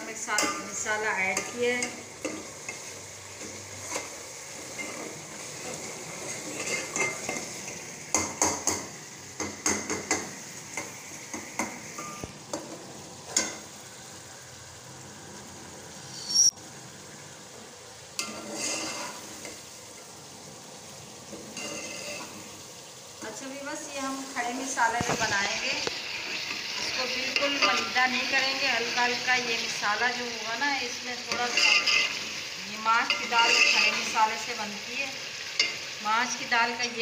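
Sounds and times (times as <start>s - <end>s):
sizzling hiss: 0.0s - 37.0s
ladle scraping and clinking pot: 2.2s - 7.5s, 18.2s - 19.6s, 21.4s - 22.4s, 31.3s - 32.4s, 33.1s - 34.1s.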